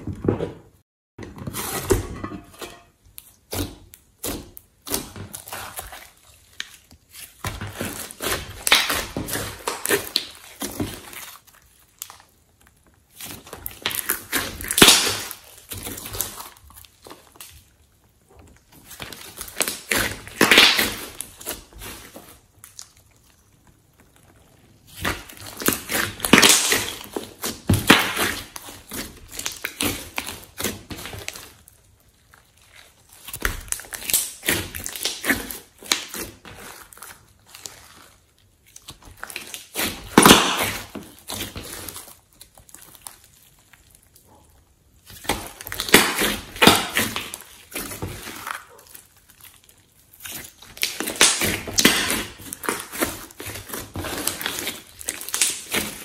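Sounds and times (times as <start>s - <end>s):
slime squelching and popping: 2.7s - 56.0s.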